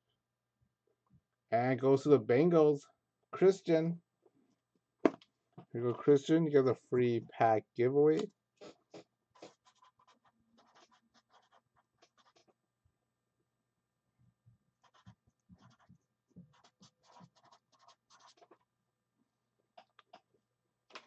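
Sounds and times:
faint scratching and rustling: 8.6s - 12.6s, 14.8s - 18.7s.

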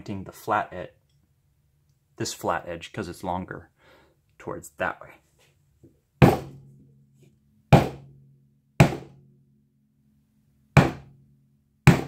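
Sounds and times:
hammer striking wet paint on canvas: 6.2s - 6.6s, 7.7s - 8.2s, 8.8s - 9.2s, 10.8s - 11.2s.

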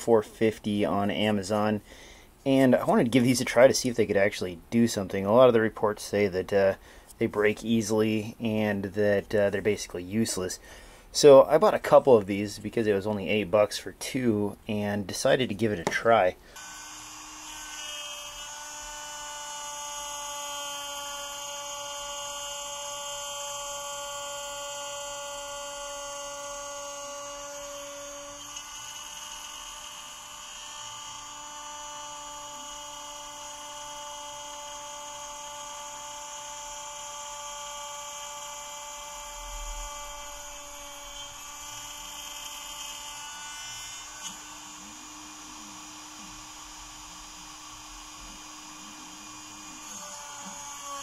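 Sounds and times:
router cutting wood: 15.6s - 51.0s.

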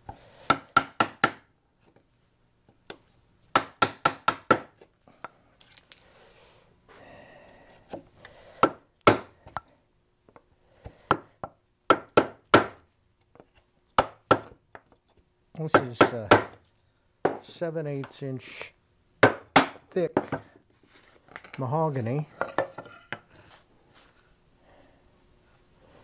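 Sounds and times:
wooden mallet striking chisel: 0.5s - 1.5s, 3.5s - 4.7s, 8.6s - 9.3s, 11.9s - 12.8s, 14.0s - 14.6s, 15.7s - 16.6s.

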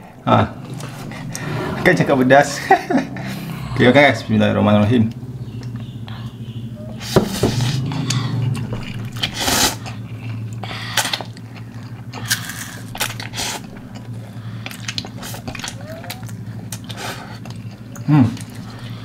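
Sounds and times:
steady low hum: 0.0s - 19.0s
chewing noises: 5.0s - 19.0s
noodles being slurped: 8.9s - 19.0s.

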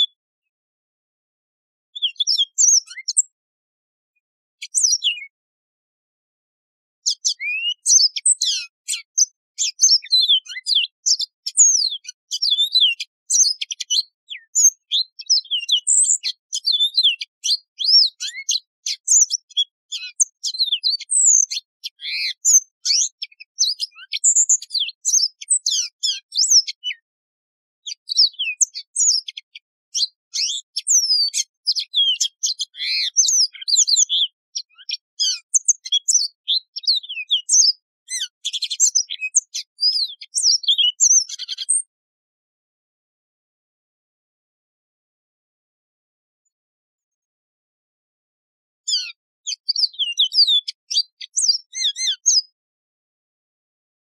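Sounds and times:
canary singing high trills: 2.0s - 3.3s, 7.0s - 27.0s, 27.9s - 41.9s, 48.9s - 52.5s.

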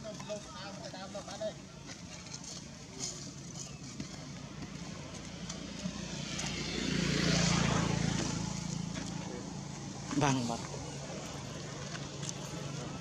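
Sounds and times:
vehicle engine passing: 4.0s - 13.0s.

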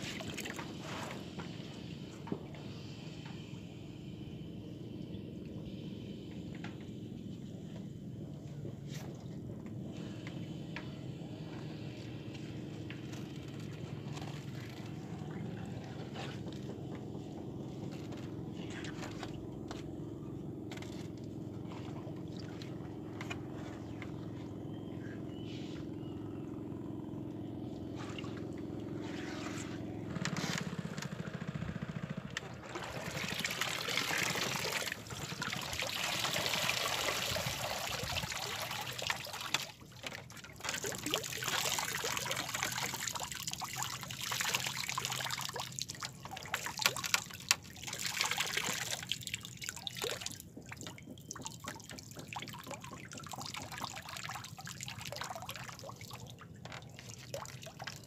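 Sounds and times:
water splashing and pouring: 0.0s - 1.2s, 32.6s - 58.0s
steady low hum: 0.0s - 58.0s.

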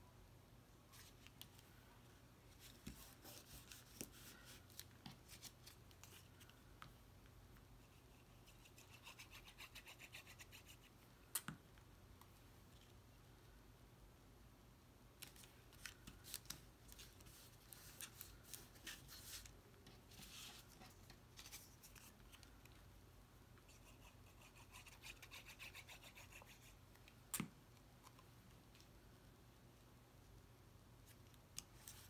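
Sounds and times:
paper rustling and rubbing: 2.5s - 6.4s, 15.8s - 22.4s.

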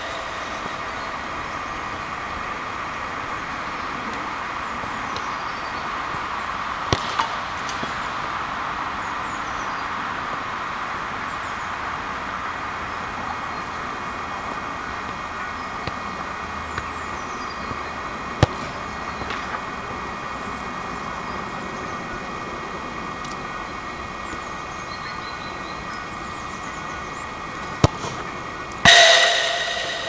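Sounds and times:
steady background hiss: 0.0s - 30.0s
football being kicked: 6.9s - 7.4s, 18.4s - 19.4s, 27.8s - 28.2s.

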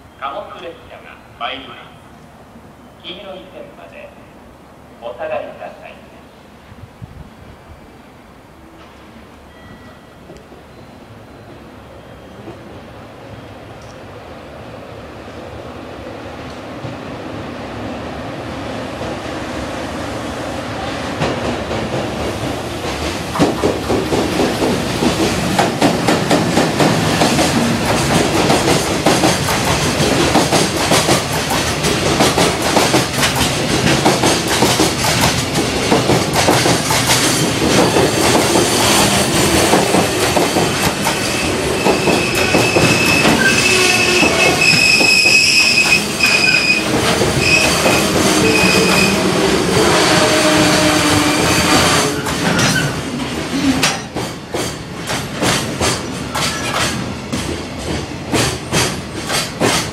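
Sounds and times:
train wheel squeal: 9.4s - 12.6s, 40.4s - 49.3s, 50.1s - 53.0s
train wheels clattering over rail joints: 21.2s - 49.1s, 50.6s - 59.9s.

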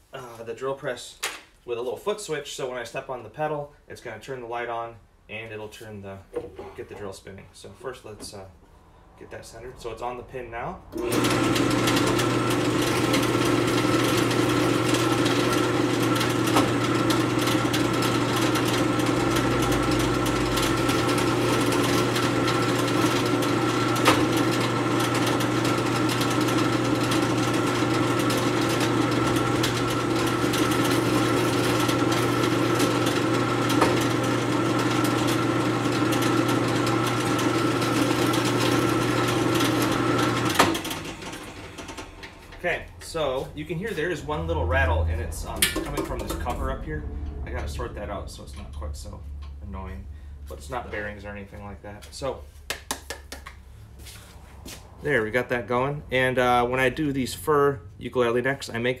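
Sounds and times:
drill press motor hum: 10.9s - 42.6s
drill bit boring wood: 11.0s - 42.6s.

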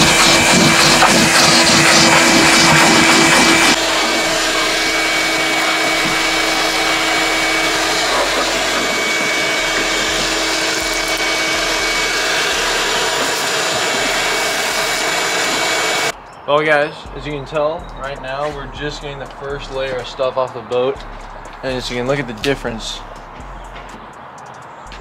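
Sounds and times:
shop vacuum sucking up dirt: 0.0s - 16.1s.

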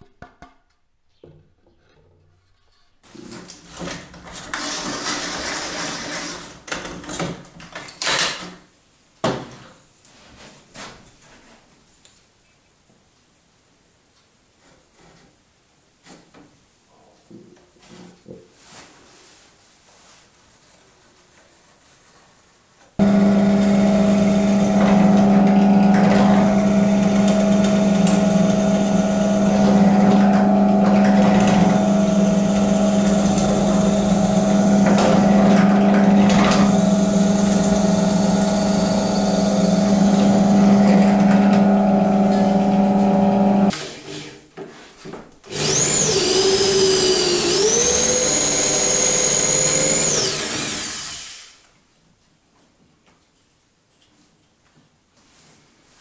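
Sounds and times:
drill bit scraping wood: 23.0s - 43.7s, 45.6s - 51.5s
drill press motor hum: 23.0s - 43.7s, 45.6s - 51.5s
electric drill whine: 23.0s - 43.7s, 45.5s - 51.6s.

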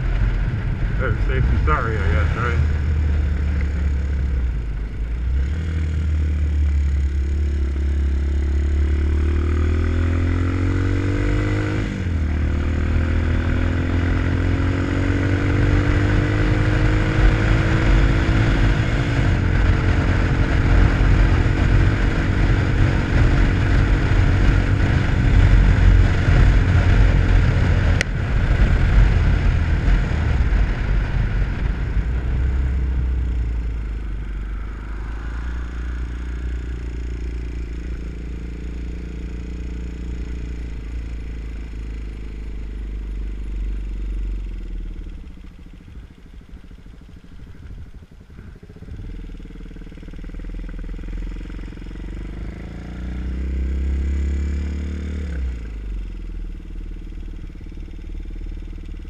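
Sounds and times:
wind rumble on microphone: 0.0s - 5.4s, 15.1s - 38.4s, 45.2s - 49.6s
motorcycle engine accelerating: 0.0s - 59.0s.

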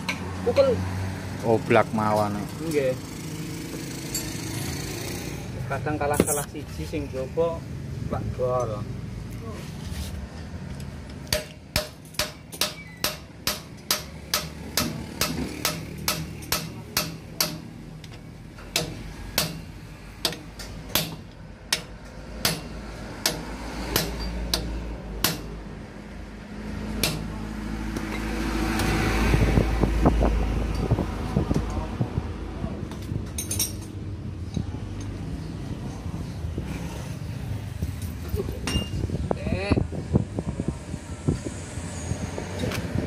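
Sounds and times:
hammer striking metal punch: 11.3s - 17.7s, 18.7s - 25.5s, 27.0s - 27.3s.

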